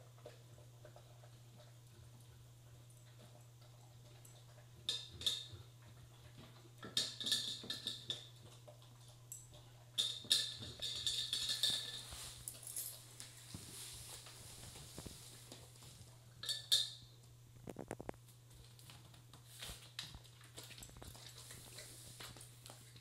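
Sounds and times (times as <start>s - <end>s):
metal bowl clinking: 10.0s - 13.1s, 16.4s - 17.1s
dog crunching kibble: 17.6s - 23.0s.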